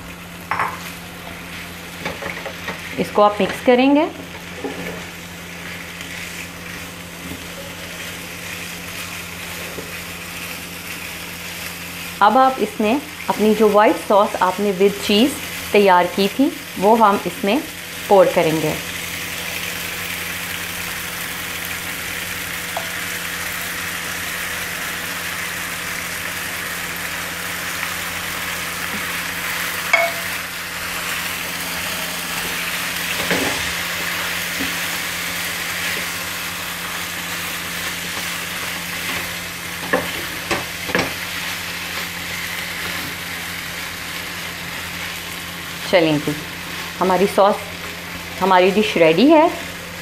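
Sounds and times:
pasta sizzling in a pan: 0.0 - 50.0
spatula stirring food: 4.5 - 11.2.

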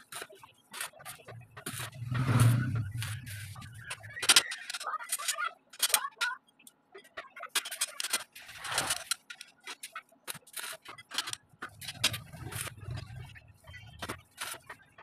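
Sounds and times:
metal scraping on concrete: 0.8 - 5.4
metal bars clicking and knocking: 1.8 - 6.3.

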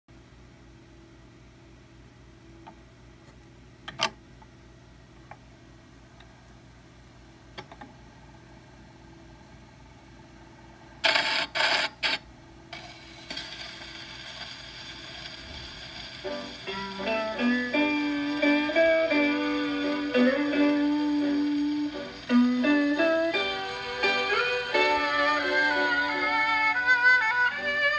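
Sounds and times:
faint steady hum: 0.1 - 27.9
record surface hiss: 0.1 - 27.9
record clicks: 2.6 - 4.5, 7.5 - 8.0
music: 15.3 - 27.9.

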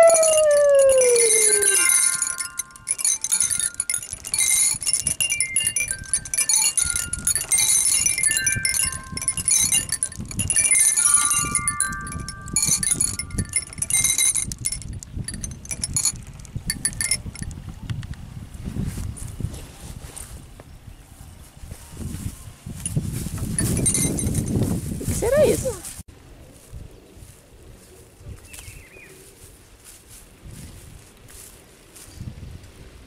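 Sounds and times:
chime-like electronic tones: 10.7 - 13.6.

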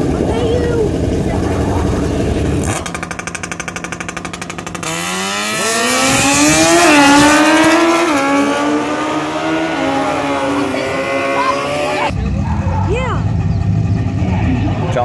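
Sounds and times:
engine held at fast stutter: 0.0 - 15.0
engines accelerating hard: 0.0 - 15.0.

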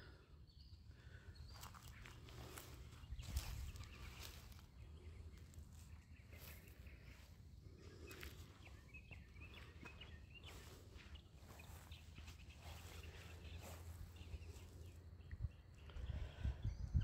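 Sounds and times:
faint high bird chirps: 0.0 - 17.0
soft footsteps on grass: 1.0 - 16.4
wind rumble on microphone: 2.9 - 4.6, 13.5 - 17.0.

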